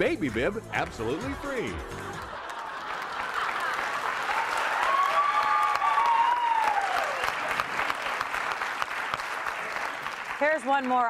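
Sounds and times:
audience applauding: 0.8 - 11.0
person whooping: 4.8 - 7.3.

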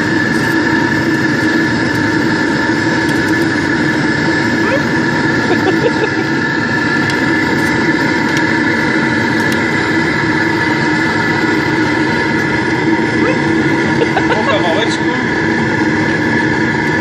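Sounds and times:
constant hum: 0.0 - 17.0
furnace rushing roar: 0.0 - 17.0.

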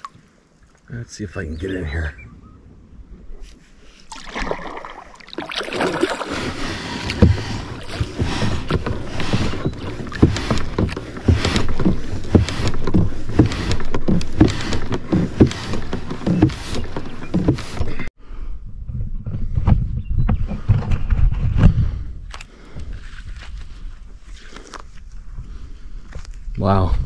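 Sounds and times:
kayak hull scraping: 3.3 - 18.1
kayak hull knocking: 7.0 - 18.1.

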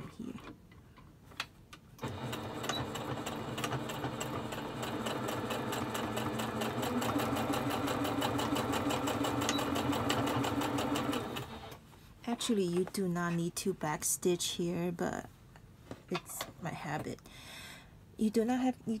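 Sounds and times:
sewing machine stitching: 2.0 - 11.8.

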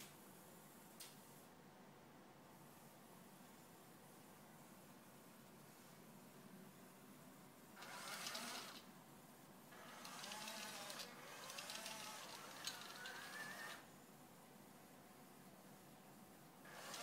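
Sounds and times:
robot drive motors whining: 7.8 - 8.8, 9.8 - 13.8.

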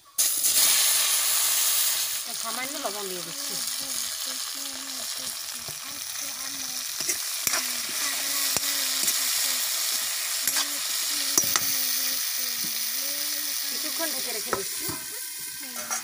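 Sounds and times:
vegetables sizzling in hot oil: 0.0 - 16.0
steel spoon scraping pan: 10.4 - 10.7, 15.7 - 16.0.

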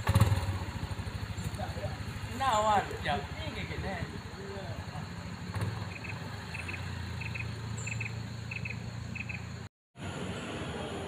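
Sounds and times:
low engine hum: 0.0 - 11.0
insect double chirps: 5.8 - 9.7.

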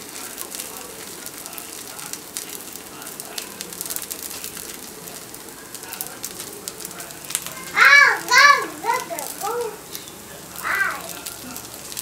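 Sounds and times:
oil sizzling and popping: 0.0 - 12.0
child's voice: 7.4 - 9.8, 10.6 - 11.2.

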